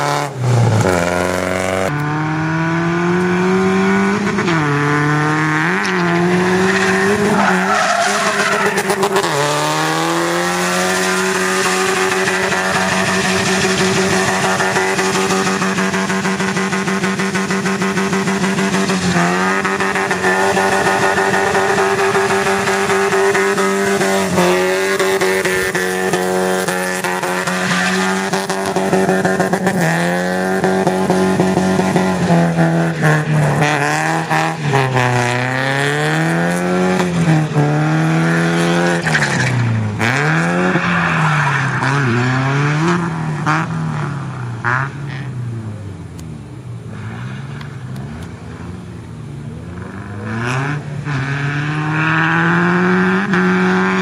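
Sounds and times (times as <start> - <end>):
engine at high revs: 0.0 - 40.9, 49.7 - 54.0
tyres skidding and squealing: 4.2 - 45.7.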